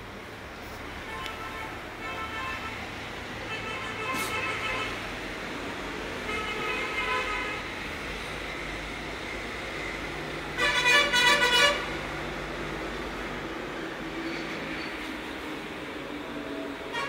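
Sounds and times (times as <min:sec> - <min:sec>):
vehicle horns honking: 0:01.0 - 0:02.8, 0:03.5 - 0:05.0, 0:06.2 - 0:07.7, 0:10.6 - 0:11.9.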